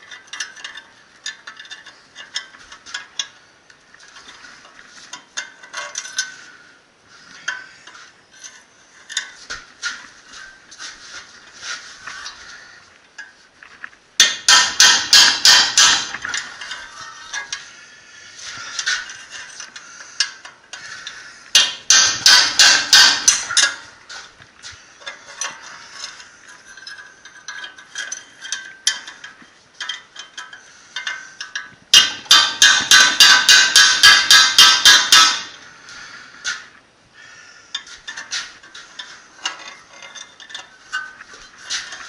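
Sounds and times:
metal parts knocking and clinking: 0.0s - 3.4s, 4.0s - 6.4s, 14.2s - 17.7s, 18.6s - 24.1s, 25.0s - 35.6s, 37.7s - 42.0s
hammer beating on metal: 14.2s - 16.2s, 21.6s - 23.8s, 32.0s - 35.6s.

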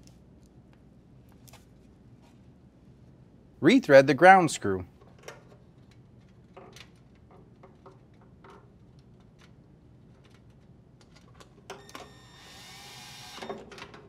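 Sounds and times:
drill driving screw into sheet metal: 11.8s - 13.8s.

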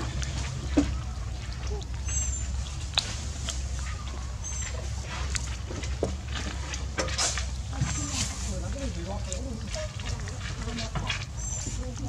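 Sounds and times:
monkey high chirps: 1.7s - 2.5s.

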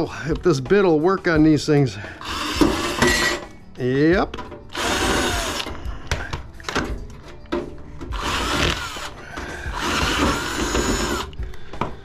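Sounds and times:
cordless drill whining: 2.2s - 3.4s, 4.7s - 5.9s, 8.1s - 11.4s.

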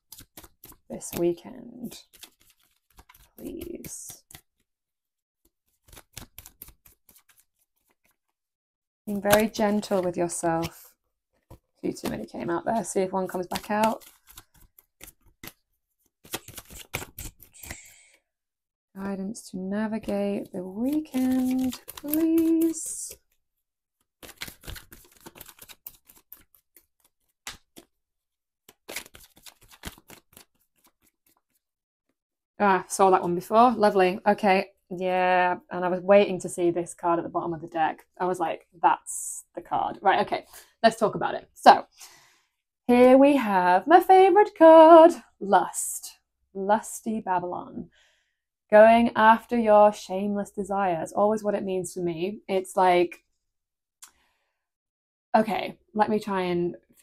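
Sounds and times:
cards being shuffled: 0.0s - 1.3s, 1.9s - 4.6s, 5.6s - 8.2s, 9.2s - 10.8s, 11.4s - 15.6s, 16.2s - 17.8s, 20.9s - 23.2s, 24.1s - 28.0s, 28.7s - 31.6s.

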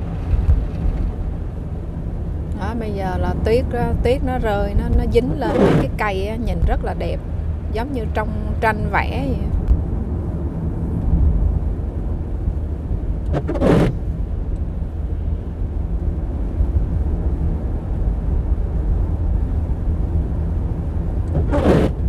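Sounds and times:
car tyres and engine rumble: 0.0s - 22.0s
brief swishes: 13.3s - 14.0s, 21.3s - 22.0s.

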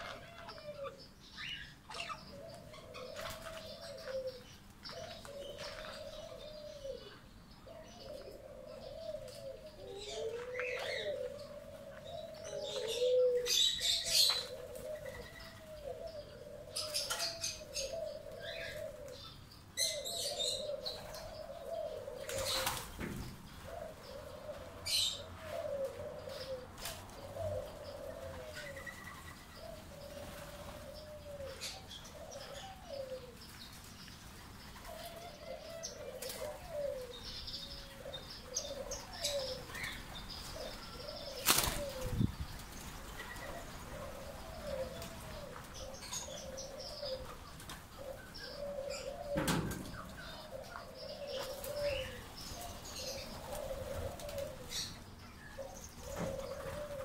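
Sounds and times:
doves cooing: 0.0s - 57.0s
small birds chirping: 0.0s - 57.0s
wings flapping: 41.4s - 43.0s.

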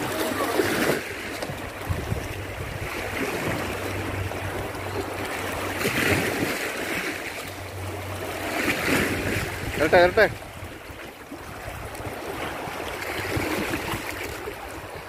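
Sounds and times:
waves splashing over rocks: 0.0s - 15.0s
wind rumble on microphone: 0.0s - 15.0s.

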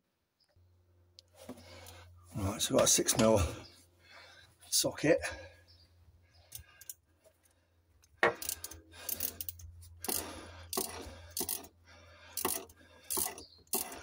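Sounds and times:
ratchet clicking and rattling: 6.4s - 7.0s, 8.1s - 14.0s.

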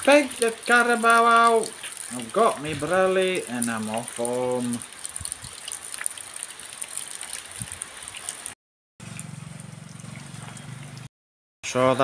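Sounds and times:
steady rain falling: 0.0s - 8.6s
small motorcycle engine passing: 9.0s - 11.1s.

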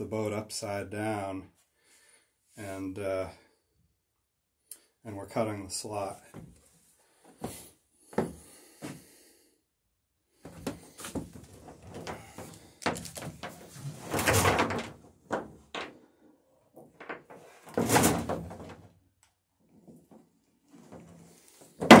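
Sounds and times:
tools and wood clattering: 10.5s - 16.0s, 16.8s - 19.0s, 19.9s - 22.0s
rattling scrapes: 10.8s - 15.9s.

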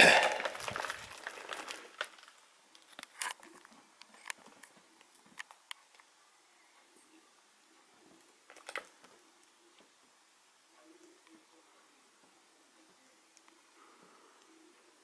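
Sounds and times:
plastic shrink-wrap crinkling: 0.2s - 4.4s.

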